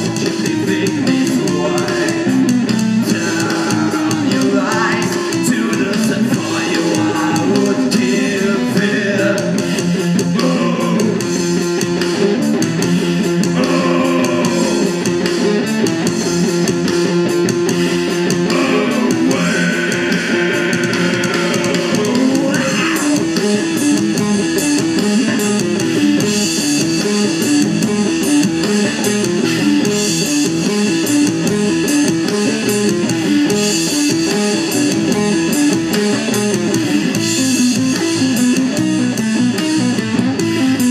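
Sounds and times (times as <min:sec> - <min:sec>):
person singing: 0:00.0 - 0:11.4, 0:13.4 - 0:15.5, 0:18.3 - 0:23.8
bass guitar: 0:00.0 - 0:40.9
drums and cymbals: 0:00.0 - 0:40.9
electric guitars: 0:00.0 - 0:40.9.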